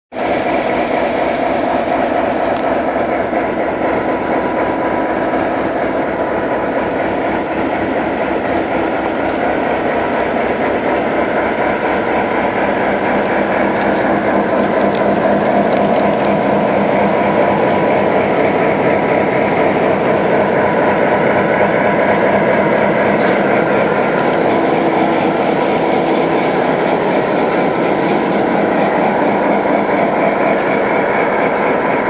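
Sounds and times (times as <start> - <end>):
diesel locomotive engine droning: 0.1 - 32.0.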